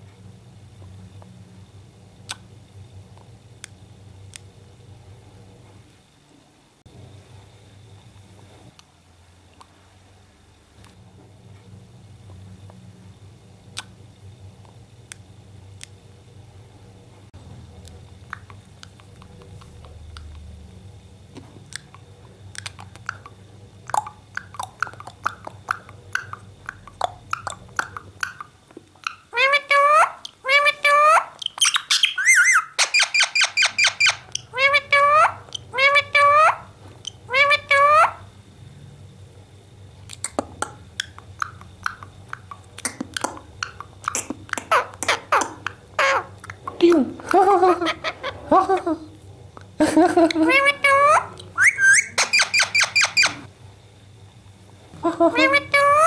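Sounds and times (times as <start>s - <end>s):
parrot beak clicks: 21.7s - 29.2s, 40.1s - 45.8s
parrot squeaky chirp: 27.4s - 36.7s, 37.3s - 38.2s, 43.6s - 46.4s, 50.5s - 53.5s, 55.3s - 56.0s
kissing smacks: 40.1s - 47.1s.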